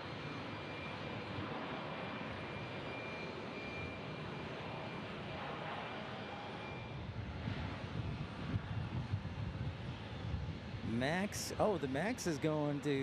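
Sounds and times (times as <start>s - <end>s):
jet engines rushing: 0.0s - 13.0s
faint high whine: 6.2s - 7.0s.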